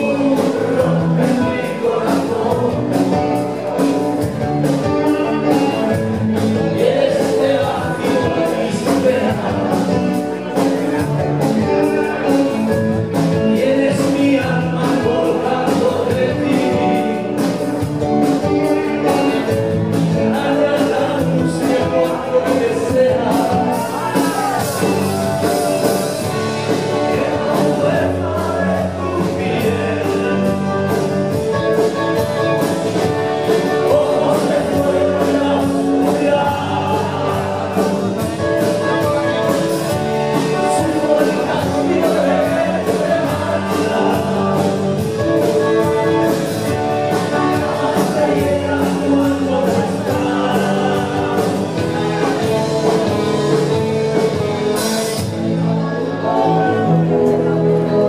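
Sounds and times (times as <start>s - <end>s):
live rock band playing: 0.0s - 58.0s
man singing lead vocal: 0.0s - 58.0s.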